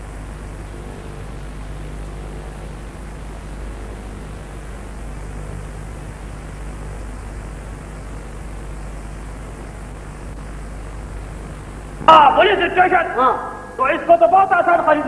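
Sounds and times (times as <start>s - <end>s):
low mains hum: 0.0s - 15.0s
tape hiss: 0.0s - 15.0s.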